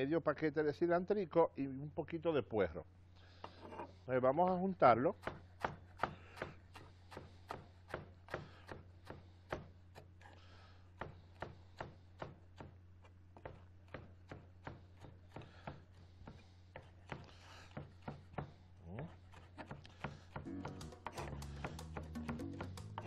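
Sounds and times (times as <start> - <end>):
knife chopping on cutting board: 5.2 - 10.1, 11.0 - 12.8, 13.4 - 23.0.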